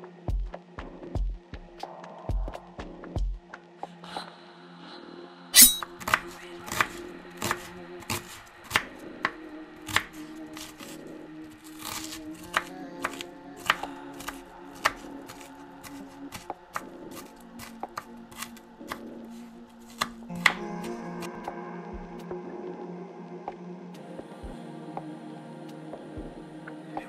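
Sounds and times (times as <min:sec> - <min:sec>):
soft background music: 0:00.0 - 0:27.0
knife chopping on plastic board: 0:06.0 - 0:11.0, 0:11.8 - 0:19.1, 0:19.9 - 0:20.6.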